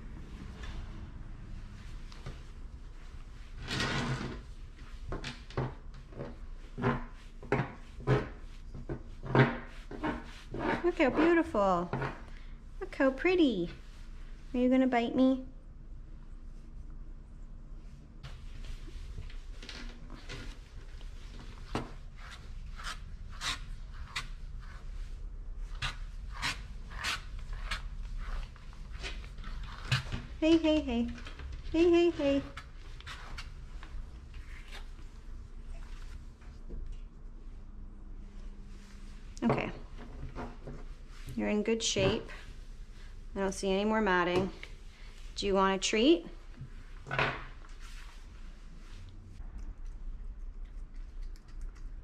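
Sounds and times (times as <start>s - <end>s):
brush strokes through cat fur: 17.8s - 29.8s, 47.7s - 49.4s.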